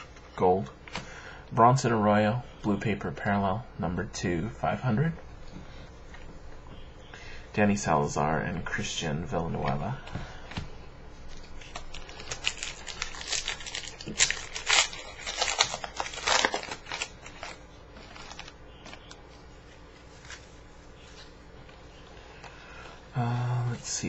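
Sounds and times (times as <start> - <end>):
cards being handled: 9.7 - 23.0
plastic wrapper tearing and crumpling: 11.3 - 19.2.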